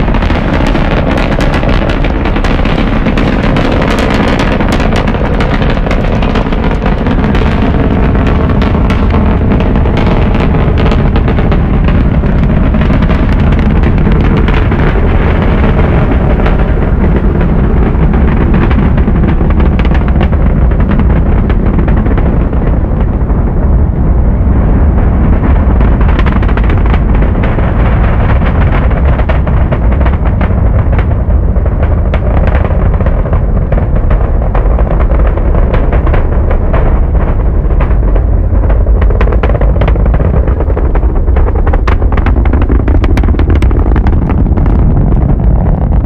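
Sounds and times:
rocket engines rumbling and crackling: 0:00.0 - 0:46.0.

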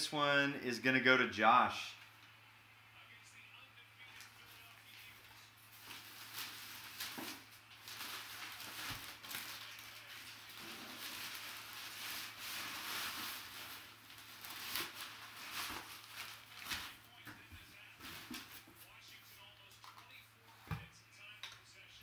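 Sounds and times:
packing paper rustling and crinkling: 0:04.1 - 0:18.8.

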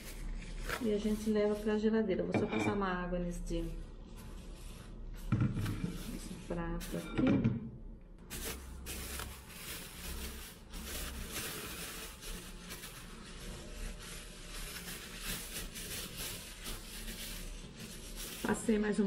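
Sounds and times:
plastic bag crinkling: 0:08.2 - 0:19.0.

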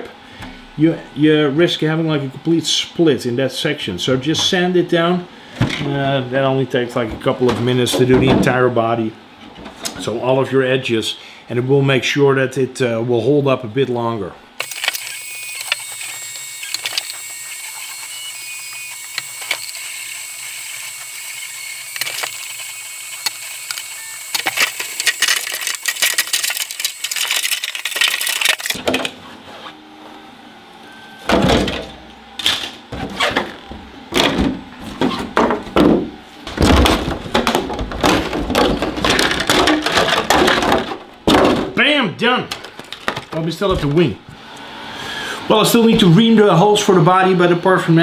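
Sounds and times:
sanding plastic edges: 0:14.6 - 0:28.8
plastic shell crinkling: 0:21.8 - 0:28.8.

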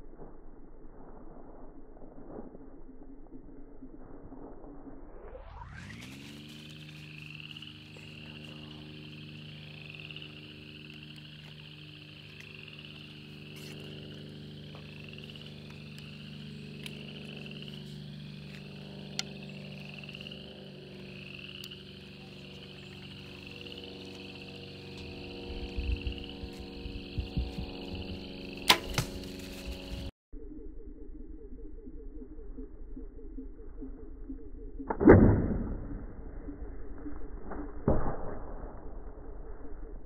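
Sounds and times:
steady low hum: 0:00.0 - 0:37.8
frog chirping: 0:06.6 - 0:28.7.

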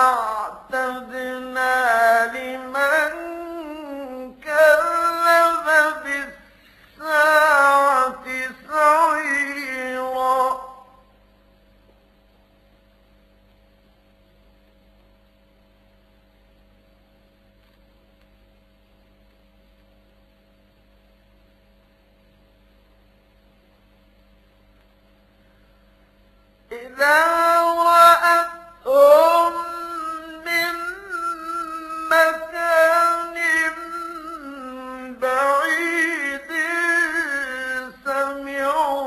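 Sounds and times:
man reciting in melodic chant: 0:00.0 - 0:11.0, 0:26.7 - 0:39.0
faint electrical hum: 0:00.0 - 0:39.0.

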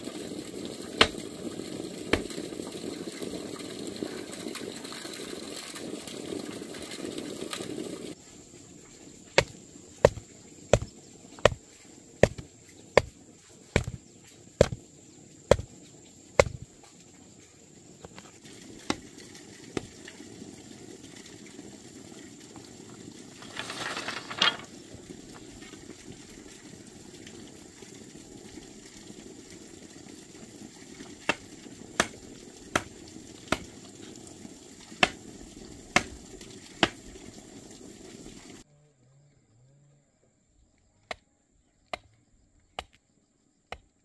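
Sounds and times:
hand tool sharp strikes: 0:09.4 - 0:10.2, 0:10.8 - 0:11.6, 0:12.2 - 0:12.4, 0:13.8 - 0:14.0, 0:16.4 - 0:16.6.

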